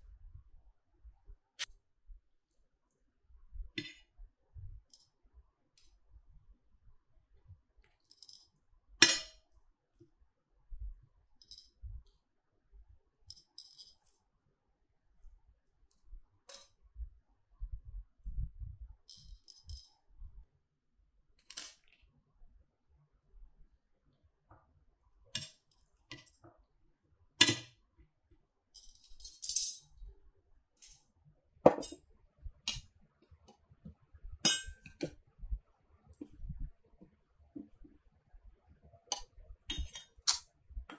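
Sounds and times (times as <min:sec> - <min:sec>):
metal tongs clinking: 0:34.5 - 0:35.1.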